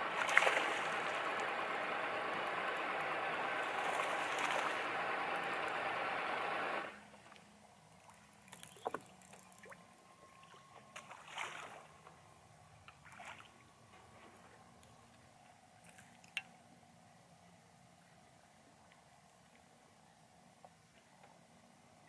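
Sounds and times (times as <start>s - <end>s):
water lapping at boat hull: 0.0s - 6.0s, 7.2s - 12.2s, 12.8s - 16.4s
faint low hum: 0.0s - 22.0s
small splashes: 0.1s - 1.6s, 3.6s - 5.6s, 8.0s - 9.8s, 10.4s - 11.9s, 12.9s - 13.7s.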